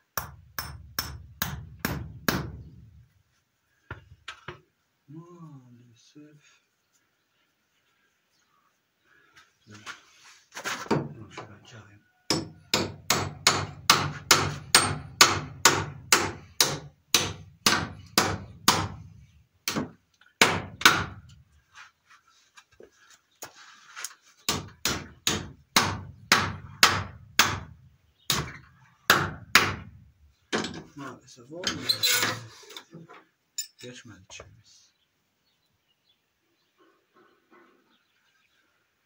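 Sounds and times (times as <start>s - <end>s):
hammer striking nail in wood: 0.2s - 2.7s, 12.3s - 19.0s, 19.6s - 21.2s, 24.5s - 27.7s, 28.3s - 29.9s.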